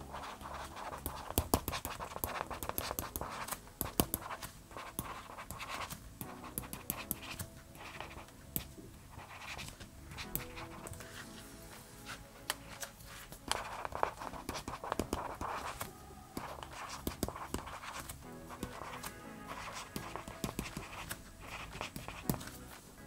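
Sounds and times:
stylus scratching on screen: 0.0 - 22.9
soft music: 0.0 - 23.0
stylus nib taps: 1.0 - 7.4.

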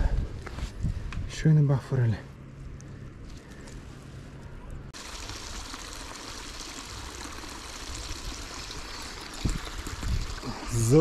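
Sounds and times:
flowing water rushing: 5.0 - 11.0.

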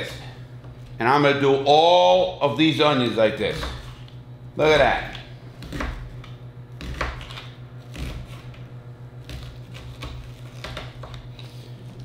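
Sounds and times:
steady low hum: 0.0 - 12.0
knife slicing onion on board: 3.5 - 8.6, 9.2 - 12.0.

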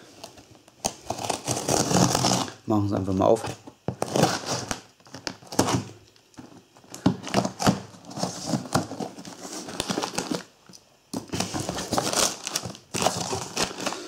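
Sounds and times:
knife slitting packing tape: 0.8 - 2.5, 4.0 - 4.8
cardboard flaps scraping and rustling: 3.3 - 10.4, 11.2 - 14.0.

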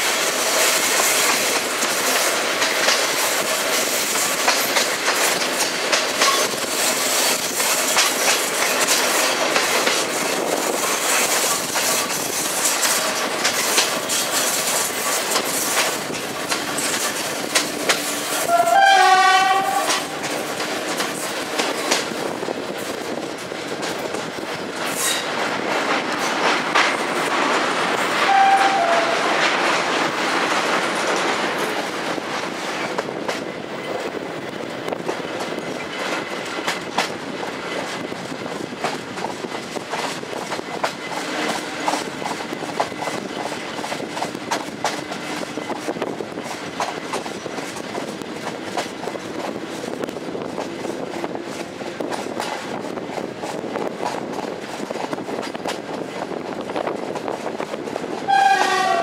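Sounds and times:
wheels clicking over rail joints: 0.0 - 28.3
train rumbling on track: 0.0 - 59.0
train horn: 18.4 - 20.4, 28.2 - 29.5, 58.3 - 59.0.

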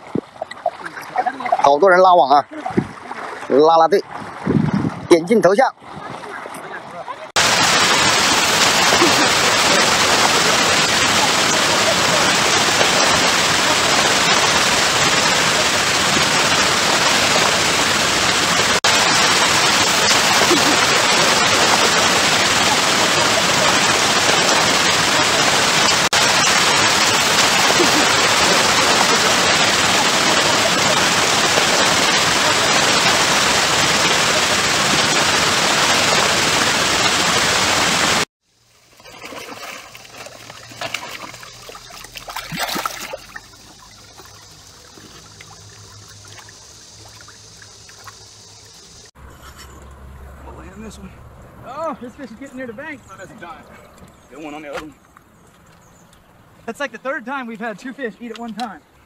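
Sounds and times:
water rushing out: 0.0 - 49.1
net splashing in shallow water: 2.5 - 4.6, 5.9 - 37.2, 38.6 - 48.2.

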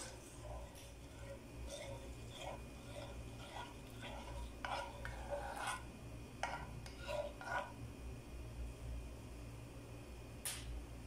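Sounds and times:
spoon scraping and clinking in saucepan: 0.0 - 7.8.

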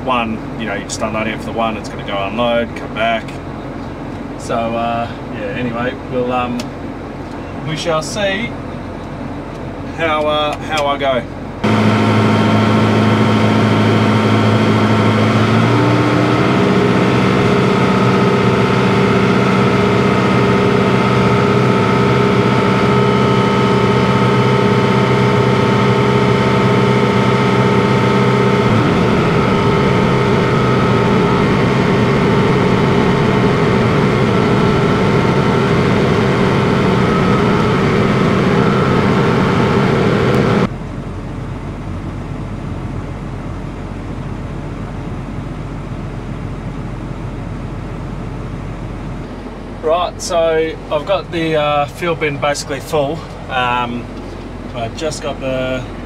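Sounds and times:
tractor engine running: 11.3 - 56.0.

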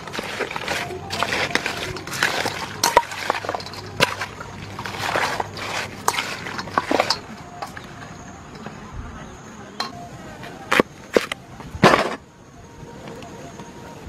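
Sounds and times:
food rustling in a bowl: 0.0 - 7.9
clinks against metal bowl: 0.1 - 7.8.

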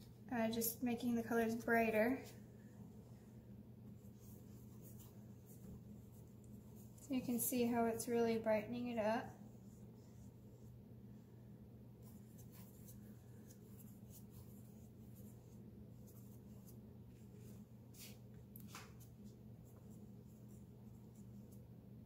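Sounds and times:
steady low hum: 0.0 - 22.0
paintbrush scratching on canvas: 3.9 - 11.2, 12.0 - 18.2.

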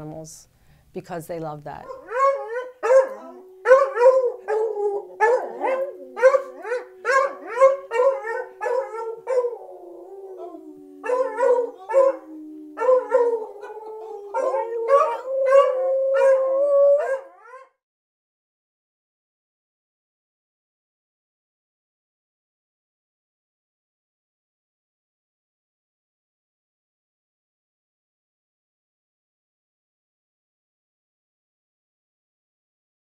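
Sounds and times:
dogs barking: 1.8 - 9.7, 11.0 - 17.6
dog howling: 1.8 - 17.8.

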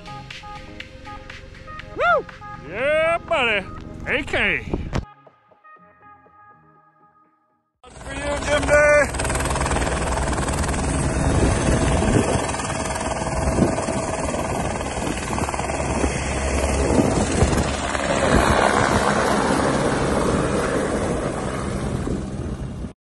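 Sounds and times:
helicopter rotor and turbine: 7.9 - 23.0.

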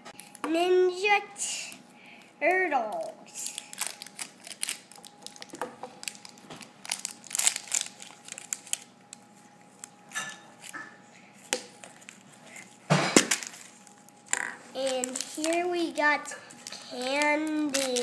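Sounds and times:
foil wrapper crinkling and tearing: 2.9 - 10.8, 11.6 - 18.0.

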